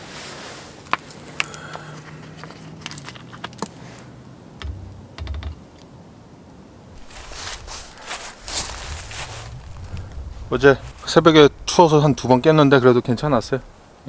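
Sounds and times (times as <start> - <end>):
dull low thumps: 4.6 - 5.6, 7.0 - 13.9.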